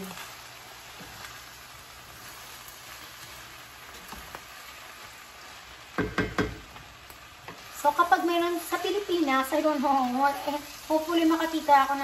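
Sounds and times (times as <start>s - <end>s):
chicken sizzling in a frying pan: 0.0s - 12.0s
spatula knocking and scraping pan: 5.9s - 6.8s.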